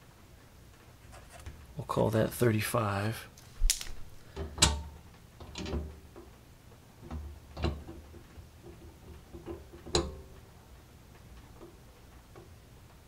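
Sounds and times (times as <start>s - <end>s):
safe handle metal clicks: 9.4s - 10.4s.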